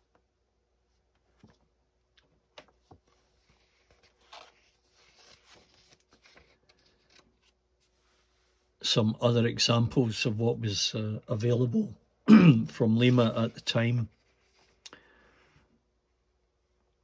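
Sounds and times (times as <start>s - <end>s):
magazine paper rustling: 2.5s - 8.5s.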